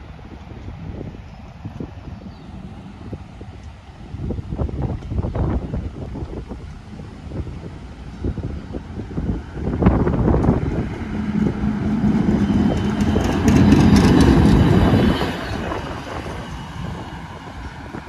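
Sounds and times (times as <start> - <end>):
streetcar passing hum: 0.0 - 18.0
wheels clicking on track: 8.8 - 18.0.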